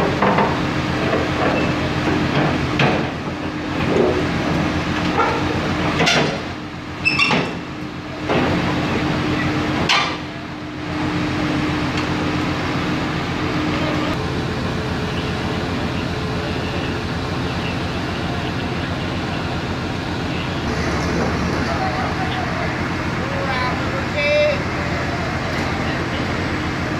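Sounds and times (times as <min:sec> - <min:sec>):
metal tracks clanking on ramps: 0:00.0 - 0:10.4, 0:20.6 - 0:22.2
excavator diesel engine: 0:00.0 - 0:26.9.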